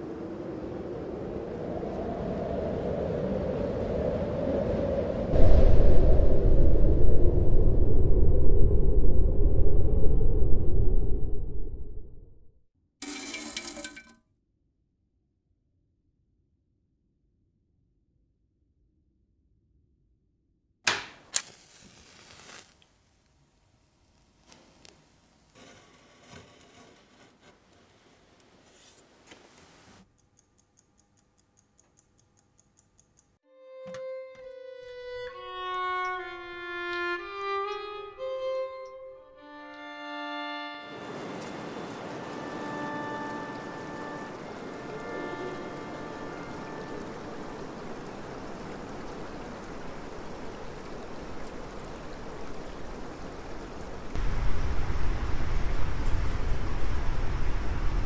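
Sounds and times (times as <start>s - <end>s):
faint hiss: 21.1s - 30.0s, 40.9s - 58.0s
pocket watch ticking: 30.1s - 33.4s
stream flowing over stones: 40.9s - 54.4s.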